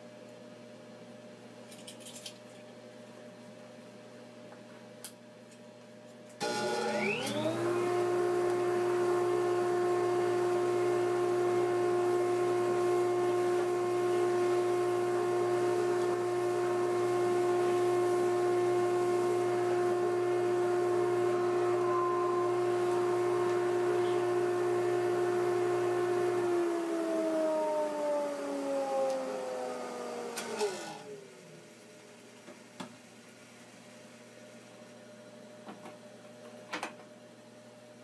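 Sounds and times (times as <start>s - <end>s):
shop vacuum whining: 6.4s - 32.3s.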